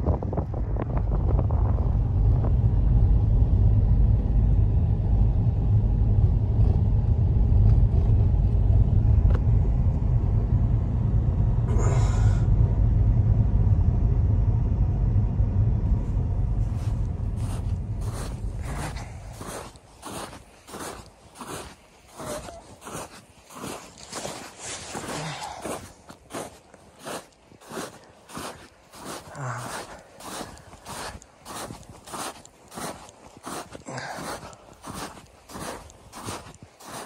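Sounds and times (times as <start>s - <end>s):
car driving on snow: 0.0s - 37.0s
footsteps crunching through snow: 16.6s - 37.0s.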